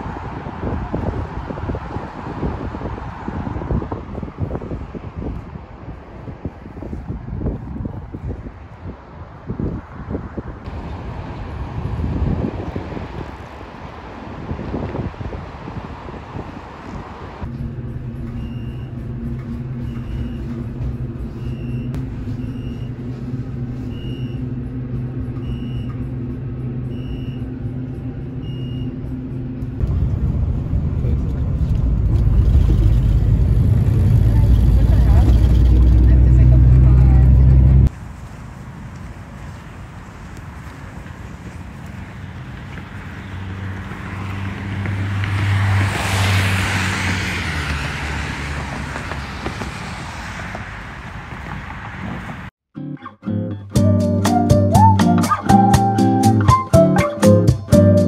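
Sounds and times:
car driving past: 29.8s - 52.5s.

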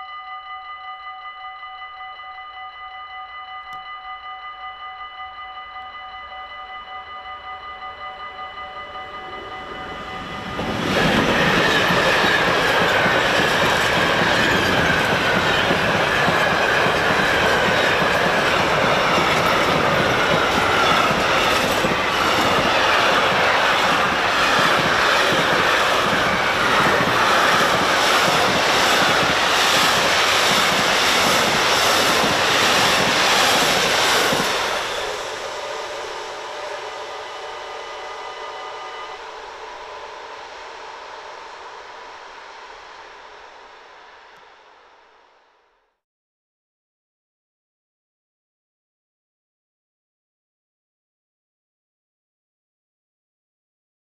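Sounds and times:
crossing warning bell ringing: 0.0s - 40.4s
train wheels clacking: 9.1s - 39.0s.

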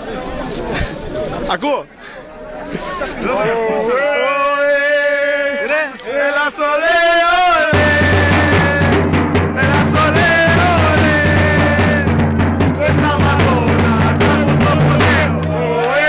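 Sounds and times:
fans singing a chant: 3.8s - 16.0s
marching snare drum: 7.7s - 16.0s.

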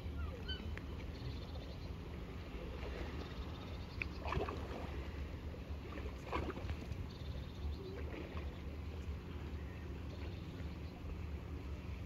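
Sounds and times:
waves lapping at water's edge: 2.2s - 7.2s
water splashes: 4.0s - 5.2s, 5.8s - 7.0s.

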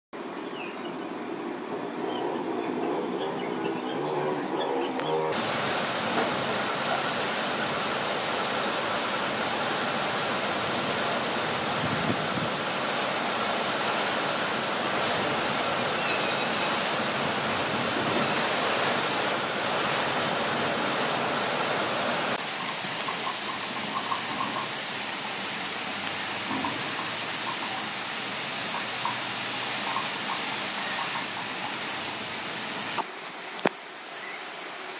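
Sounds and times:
heavy rain pouring: 5.0s - 34.1s.

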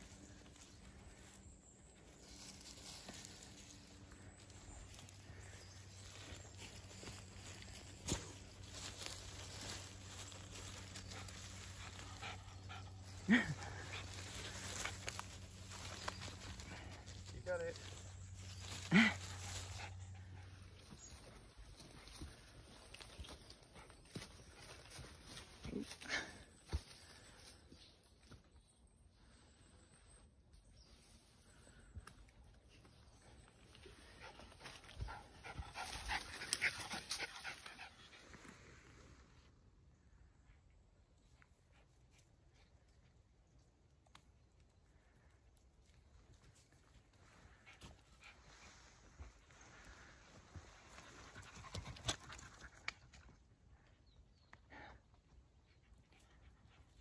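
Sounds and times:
dog panting: 11.0s - 15.0s.

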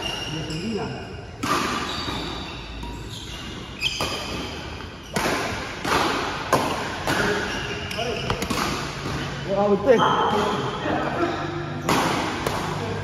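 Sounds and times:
shoes squeaking on court floor: 0.0s - 5.3s, 7.0s - 11.8s
badminton rackets hitting shuttlecock: 1.3s - 9.5s, 11.6s - 13.0s.

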